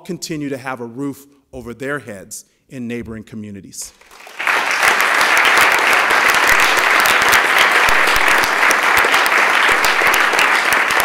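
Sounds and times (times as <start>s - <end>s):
crowd applauding: 3.9s - 11.0s.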